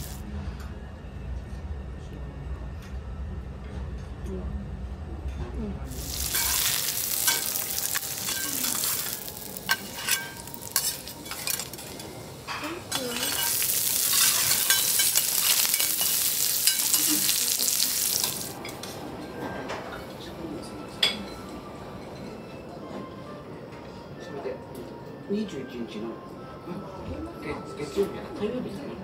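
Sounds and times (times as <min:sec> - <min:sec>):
meat and vegetables sizzling on griddle: 0:00.0 - 0:00.2, 0:05.9 - 0:18.7
metal spatulas clicking and scraping: 0:06.3 - 0:18.8.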